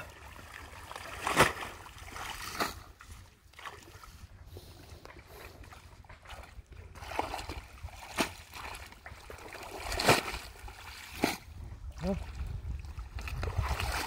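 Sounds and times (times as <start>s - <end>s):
splashing in muddy water: 0.0s - 14.0s.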